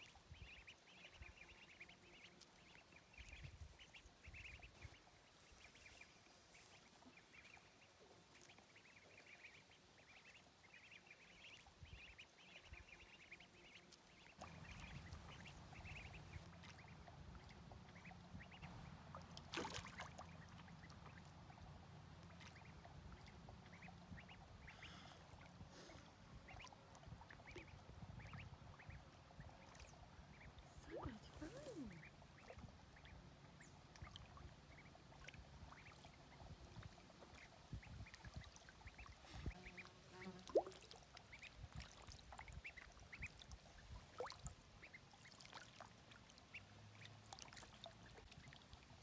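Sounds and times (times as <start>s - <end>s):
ducklings peeping: 0.0s - 49.0s
low steady rumble: 14.1s - 39.6s
water splash: 19.1s - 20.4s.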